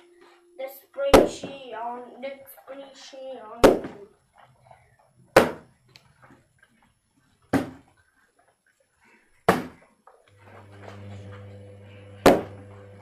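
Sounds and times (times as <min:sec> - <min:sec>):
plastic bottle thudding on floor: 0:07.5 - 0:07.8, 0:09.5 - 0:09.8.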